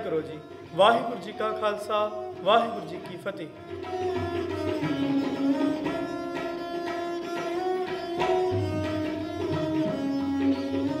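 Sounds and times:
string instrument melody: 0.0 - 11.0
tabla strokes: 0.0 - 11.0.

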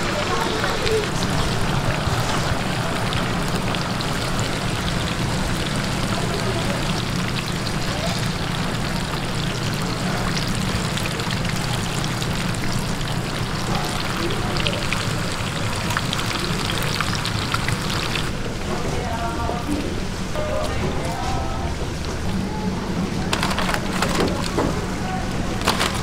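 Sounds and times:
fritters deep-frying in oil: 0.0 - 18.8.

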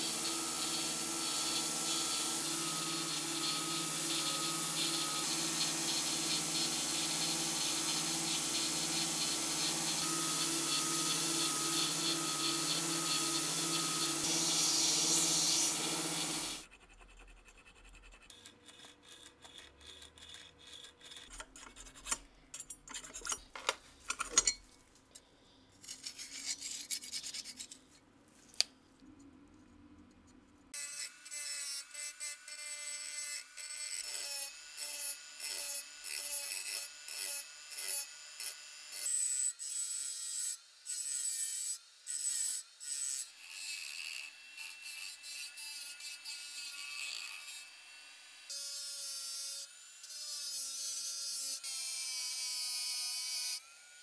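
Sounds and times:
rotary tool scrubbing rust off steel: 0.0 - 16.6, 18.2 - 23.5.

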